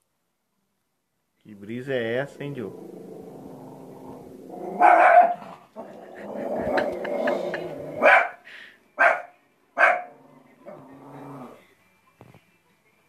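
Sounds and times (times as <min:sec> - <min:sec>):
dog growling: 0:02.2 - 0:08.3, 0:09.8 - 0:11.6
small dog barking: 0:04.8 - 0:05.5, 0:08.0 - 0:08.4, 0:09.0 - 0:10.2.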